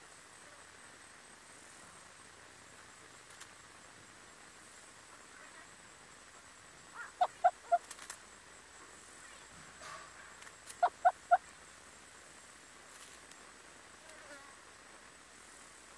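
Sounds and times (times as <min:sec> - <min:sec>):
hornbill call notes: 0:10.7 - 0:11.4.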